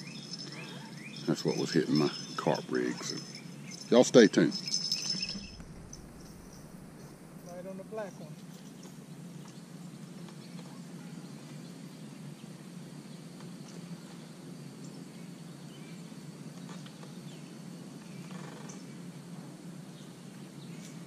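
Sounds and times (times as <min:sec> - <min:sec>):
birds chirping: 0:00.0 - 0:19.2
steady low rumble: 0:04.5 - 0:08.5.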